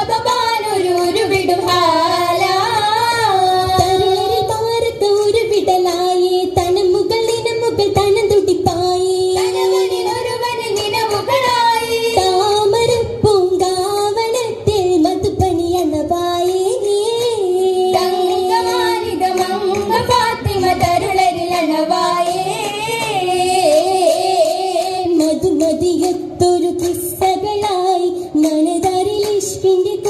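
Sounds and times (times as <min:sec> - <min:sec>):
girls singing together: 0:00.0 - 0:30.0
sharp hand claps: 0:18.0 - 0:21.7, 0:22.5 - 0:27.7, 0:28.4 - 0:29.7.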